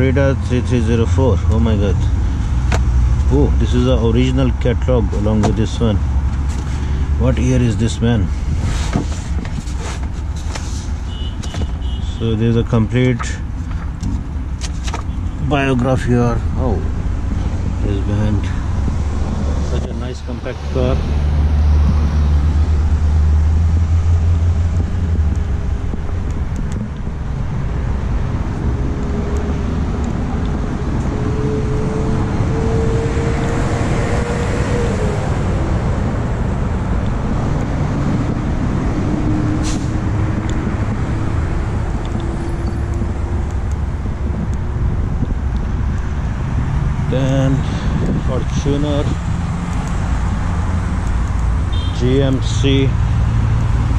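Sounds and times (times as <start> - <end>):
faint engine whine: 0.0 - 53.9
road traffic: 0.0 - 53.9.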